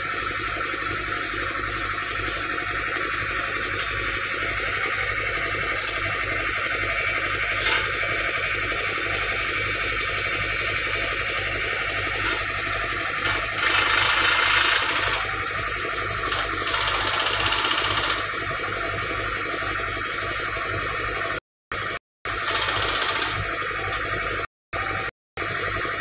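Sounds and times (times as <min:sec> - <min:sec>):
diesel engine idling: 0:00.1 - 0:16.6.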